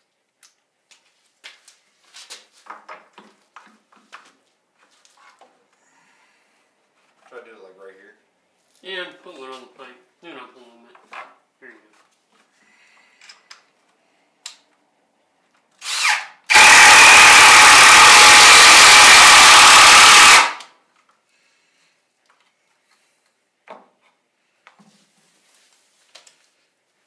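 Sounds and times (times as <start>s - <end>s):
cordless drill driving screw: 15.8s - 20.6s.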